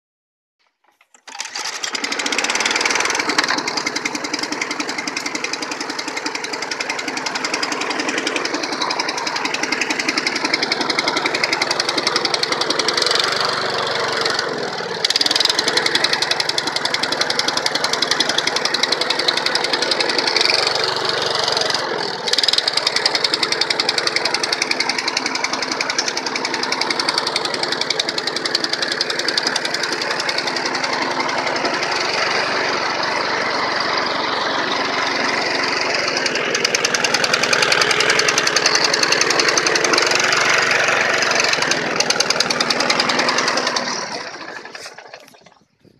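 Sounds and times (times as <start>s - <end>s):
lawn mower engine running: 0.6s - 45.9s.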